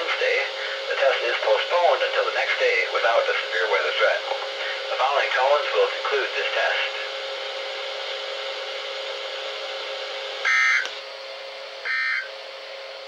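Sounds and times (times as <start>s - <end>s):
receiver hiss: 0.0s - 7.3s
low steady hum: 0.0s - 13.0s
short buzzing data bursts: 10.5s - 10.9s, 11.9s - 12.3s.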